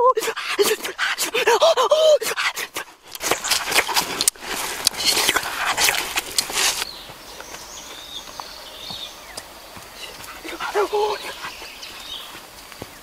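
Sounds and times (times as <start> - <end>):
rustling and crackling: 3.0 - 8.5.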